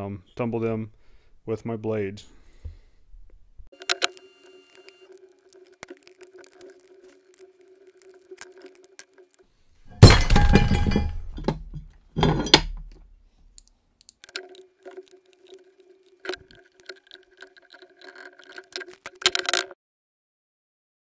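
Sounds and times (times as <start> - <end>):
metal plate clattering on wood: 9.9 - 13.0
metallic clicks and clinks: 10.7 - 19.8.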